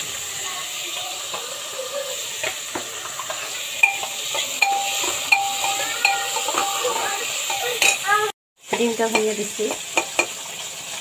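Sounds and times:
oil sizzling: 0:00.0 - 0:11.0
metal spatula clinking against pot: 0:03.2 - 0:08.1.

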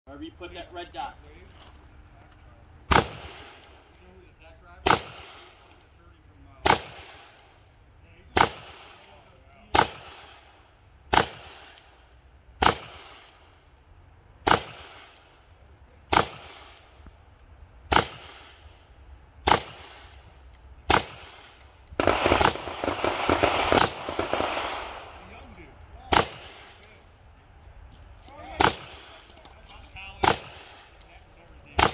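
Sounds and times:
rifle shots with echo: 0:02.9 - 0:03.8, 0:04.8 - 0:05.9, 0:06.6 - 0:07.5, 0:08.3 - 0:12.0, 0:12.6 - 0:13.6, 0:14.4 - 0:15.2, 0:16.1 - 0:16.8, 0:17.9 - 0:18.7, 0:19.5 - 0:20.2, 0:20.9 - 0:25.3, 0:26.1 - 0:27.0, 0:28.6 - 0:29.4, 0:30.2 - 0:30.9.

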